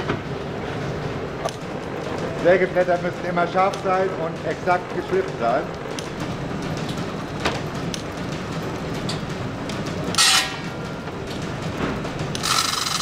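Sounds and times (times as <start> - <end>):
sharpening machine clattering: 10.1 - 10.8, 12.3 - 13.0.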